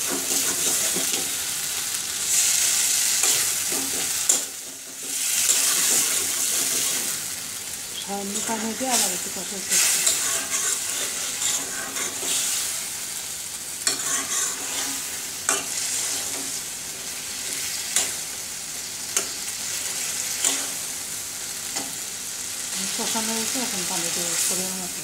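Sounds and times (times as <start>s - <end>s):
fish sizzling in oil: 0.0s - 25.0s
metal spatula stirring: 9.7s - 12.6s, 13.8s - 16.6s.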